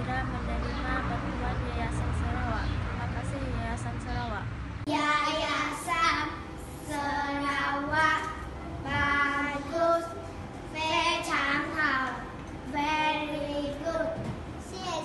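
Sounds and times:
girls singing: 6.9 - 12.1.

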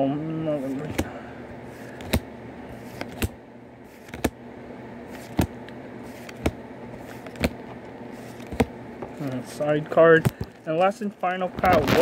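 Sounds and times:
steady low hum: 0.0 - 12.0
cards clicking as flipped: 1.8 - 2.2, 2.8 - 4.4, 5.1 - 7.6, 8.2 - 9.4.

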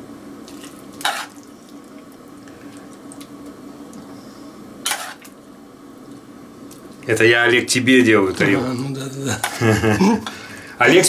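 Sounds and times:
faint steady hum: 0.0 - 11.0
spoon scraping wet salad: 1.0 - 1.5, 4.9 - 5.3.

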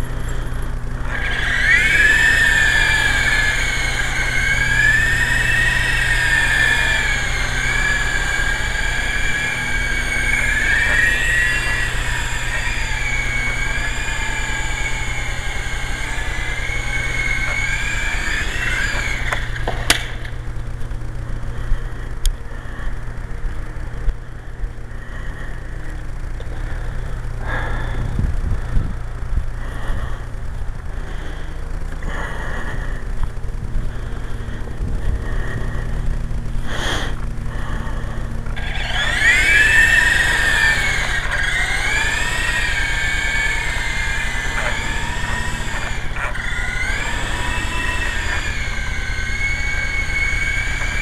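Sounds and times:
rc helicopter motors whining: 0.0 - 51.0
wind on microphone: 28.0 - 29.4.

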